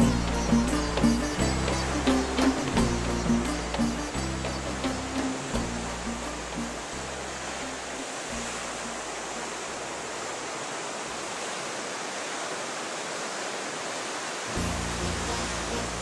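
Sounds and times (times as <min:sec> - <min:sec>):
background music: 0:00.0 - 0:09.7, 0:14.5 - 0:16.0.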